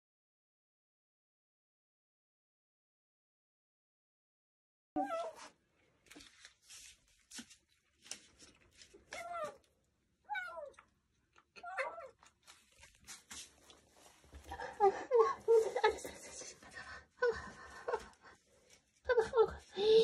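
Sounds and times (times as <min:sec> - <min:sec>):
kibble clicks and rustles: 0:06.0 - 0:09.7, 0:10.6 - 0:14.6
kitten meowing: 0:10.3 - 0:10.8, 0:11.6 - 0:12.2.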